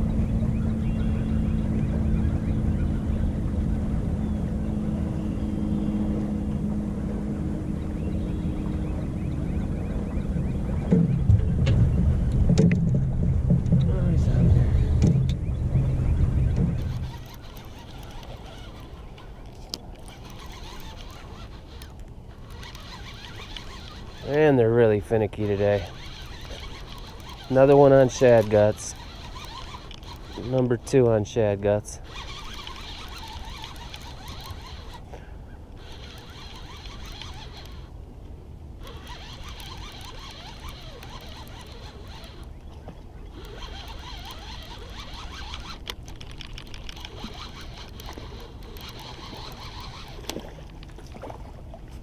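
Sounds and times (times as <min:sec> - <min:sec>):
fishing reel cranking: 0:16.5 - 0:38.0, 0:38.7 - 0:50.9.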